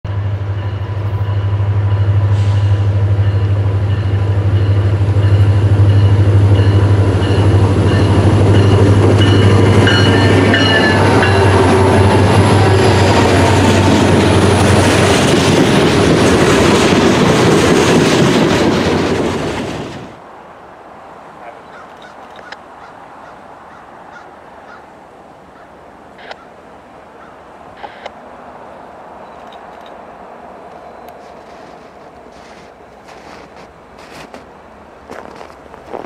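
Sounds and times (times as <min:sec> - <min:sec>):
train wheels rumbling on rails: 0:00.1 - 0:20.2, 0:29.2 - 0:36.0
diesel locomotive engine drone: 0:00.1 - 0:36.0.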